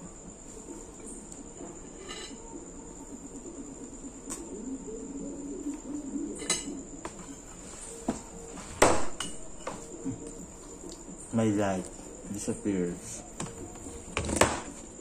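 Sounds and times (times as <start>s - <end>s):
cricket trilling: 0.0s - 15.0s.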